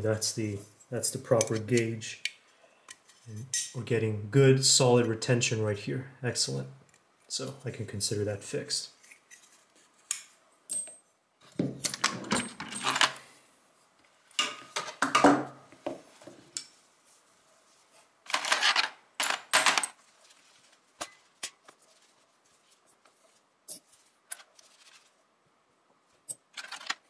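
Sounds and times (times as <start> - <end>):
cloth rubbing: 20.0 - 25.2
small metal parts clinking: 26.3 - 27.0.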